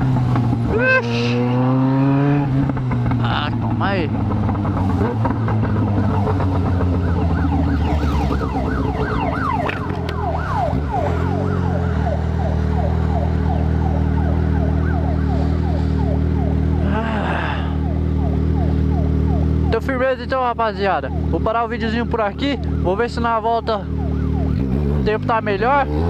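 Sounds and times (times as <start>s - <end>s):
motorcycle engine idling: 2.6s - 10.7s
siren-like electronic tone: 5.4s - 16.9s, 17.7s - 19.9s.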